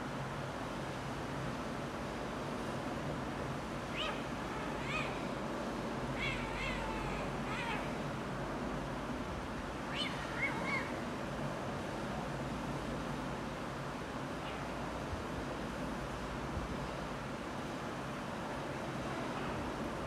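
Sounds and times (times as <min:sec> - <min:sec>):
kitten meowing: 0:06.2 - 0:08.0.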